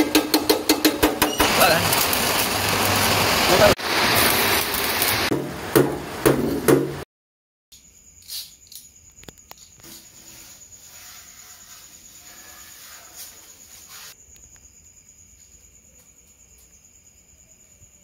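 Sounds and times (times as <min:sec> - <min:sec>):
heavy knocks: 0:05.3 - 0:07.0.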